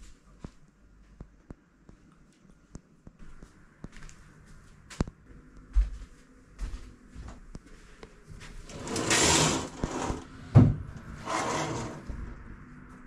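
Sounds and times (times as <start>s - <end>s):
window sliding open: 8.7s - 12.2s.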